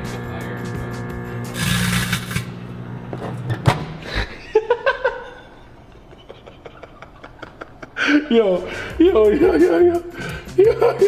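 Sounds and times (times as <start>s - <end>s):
microwave oven humming: 0.0s - 6.0s
person laughing: 4.0s - 11.0s.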